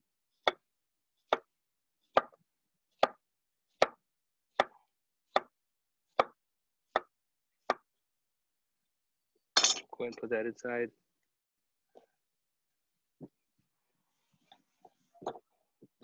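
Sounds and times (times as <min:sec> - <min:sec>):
knife chopping on wooden board: 0:00.4 - 0:00.6, 0:01.3 - 0:01.5, 0:03.0 - 0:07.9.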